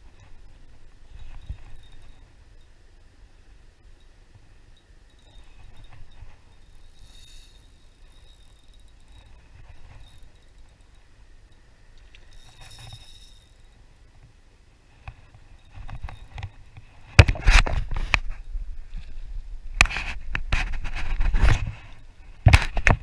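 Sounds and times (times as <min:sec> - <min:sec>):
rod knocking and clatter: 0:01.1 - 0:02.3, 0:05.1 - 0:11.1, 0:12.0 - 0:13.8, 0:15.1 - 0:18.4
fishing reel cranking: 0:01.2 - 0:02.3, 0:05.0 - 0:13.8, 0:15.6 - 0:16.8.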